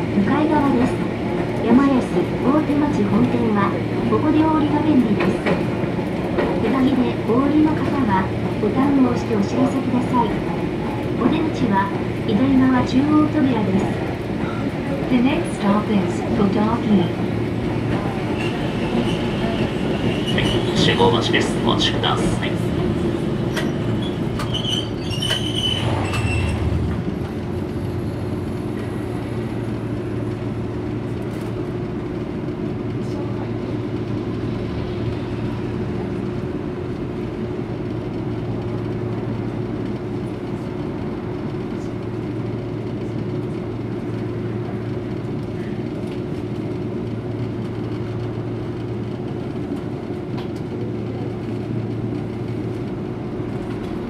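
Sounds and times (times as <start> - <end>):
tram equipment hum: 0.0 - 54.0
tram rumbling to a stop: 0.0 - 54.0.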